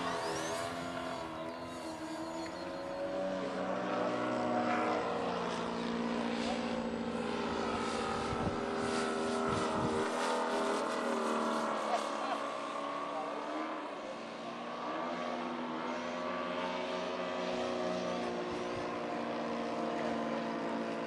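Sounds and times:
model airplane motor whine: 0.0 - 21.0.

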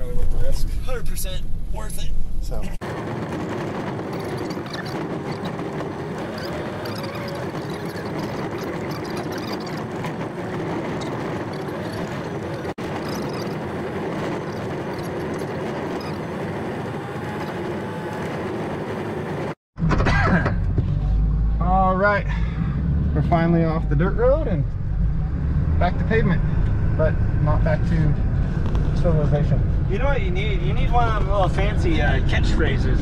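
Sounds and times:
truck engine and road noise: 0.0 - 33.0.

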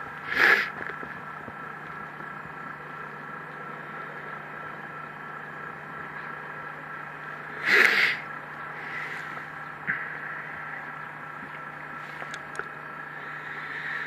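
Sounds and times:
diesel tractor engine idling: 0.0 - 14.0.

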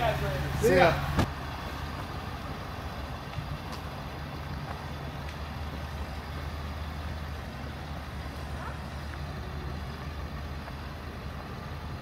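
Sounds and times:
truck engine idling: 0.0 - 12.0
truck door shutting: 1.1 - 1.4.

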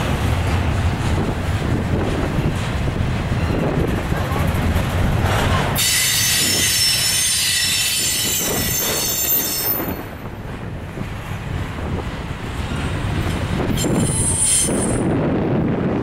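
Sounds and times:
freight train wheels rumbling: 0.0 - 16.0
wheel squeal: 5.8 - 10.0, 13.8 - 15.0.

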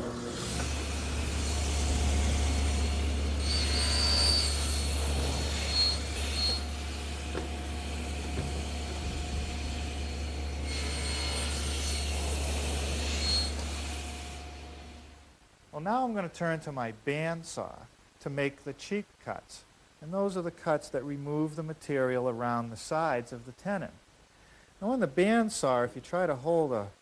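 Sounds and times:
saw blade whining through wood: 0.0 - 14.9
table saw motor hum: 0.0 - 15.1.

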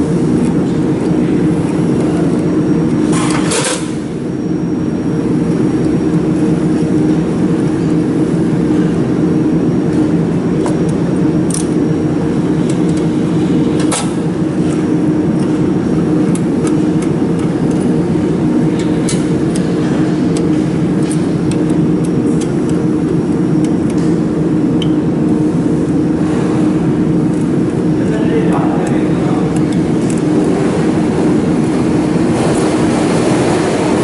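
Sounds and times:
cooling fans humming: 0.0 - 34.0.

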